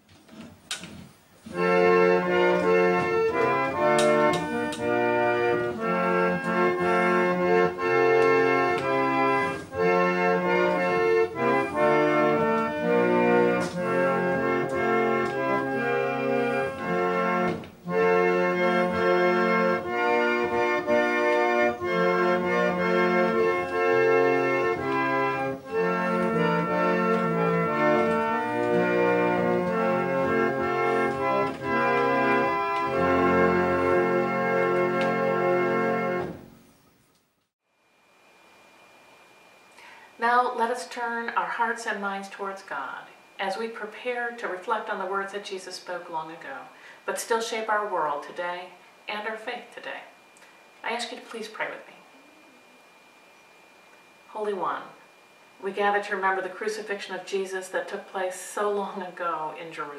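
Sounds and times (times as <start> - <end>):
pump organ playing chords: 1.4 - 37.0.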